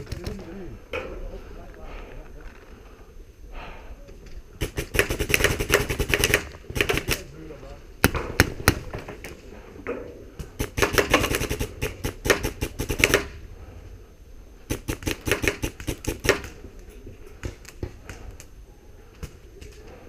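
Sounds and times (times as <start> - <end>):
airsoft guns firing: 4.6 - 7.4, 8.0 - 9.3, 10.4 - 13.4, 14.7 - 16.8.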